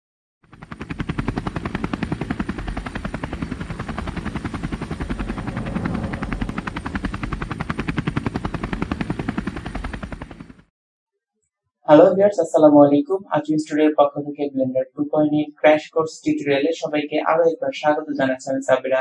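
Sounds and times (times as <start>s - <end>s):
propeller aircraft engine: 0.4s - 10.7s.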